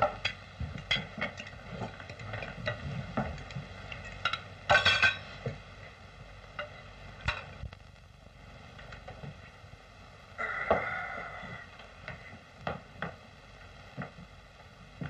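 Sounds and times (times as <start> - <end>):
film soundtrack hum: 0.0 - 15.0
dishes and cutlery clinking: 3.4 - 5.4
dishes clattering: 3.4 - 5.4.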